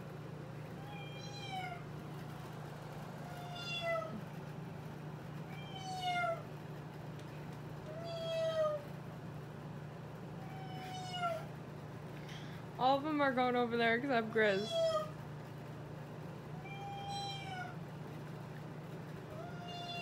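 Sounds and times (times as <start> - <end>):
steady low hum: 0.0 - 20.0
cat meowing: 0.8 - 1.8, 3.2 - 4.2, 5.5 - 6.5, 7.9 - 8.8, 10.4 - 11.5, 14.6 - 15.1, 16.5 - 17.8, 19.3 - 20.0.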